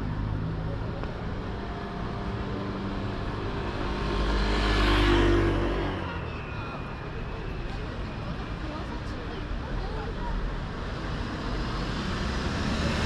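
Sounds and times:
car engine passing: 0:11.1 - 0:13.0.

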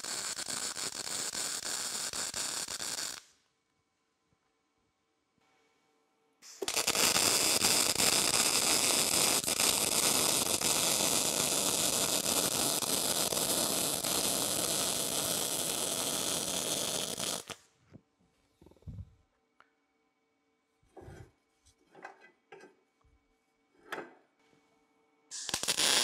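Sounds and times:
welding arc crackling: 0:00.0 - 0:03.3, 0:06.4 - 0:17.6, 0:25.3 - 0:26.0.

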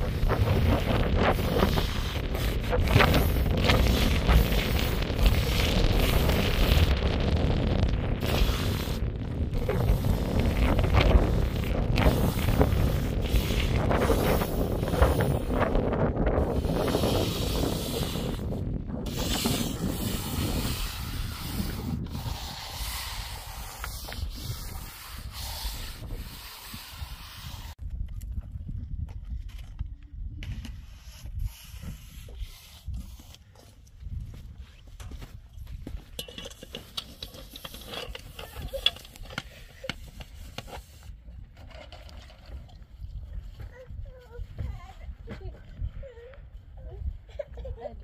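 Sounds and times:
wind rumbling on microphone: 0:00.0 - 0:48.0
trowel scraping wet cement: 0:19.1 - 0:27.8, 0:36.5 - 0:41.1.

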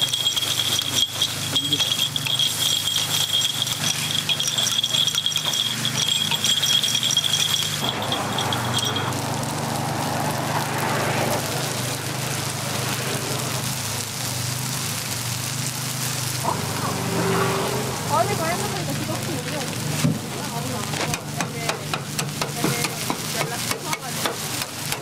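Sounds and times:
metal picks clicking on a pan: 0:00.0 - 0:09.2, 0:20.8 - 0:25.0
high ringing tone: 0:00.0 - 0:09.6
food sizzling on a griddle: 0:00.0 - 0:25.0.

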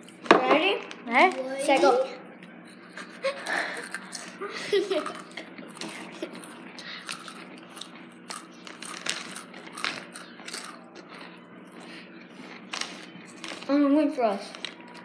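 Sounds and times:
crisp crunching while chewing: 0:05.1 - 0:13.7, 0:14.4 - 0:15.0.

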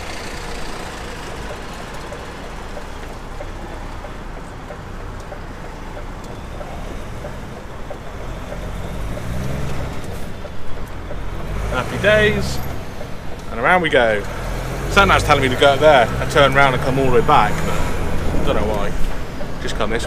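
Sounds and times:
truck diesel engine from cab: 0:00.0 - 0:20.0.

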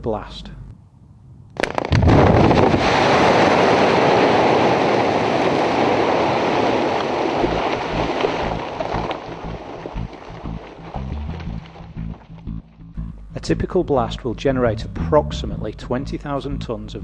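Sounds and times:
blast cracks: 0:01.6 - 0:12.5
rock tumbling roar: 0:01.6 - 0:12.6.

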